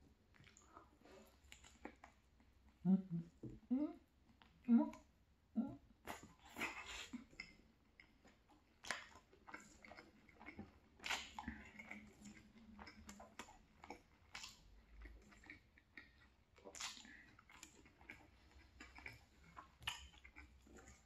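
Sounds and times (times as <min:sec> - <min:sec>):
person chewing food: 0:00.2 - 0:03.6, 0:06.0 - 0:21.0
wet mouth clicks and smacks: 0:06.1 - 0:21.0.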